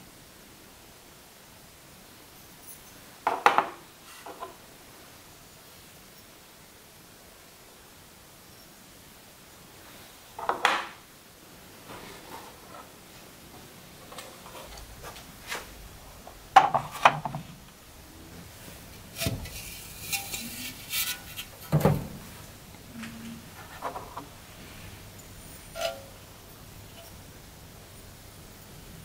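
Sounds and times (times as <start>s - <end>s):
scraping rustle: 11.8s - 27.3s.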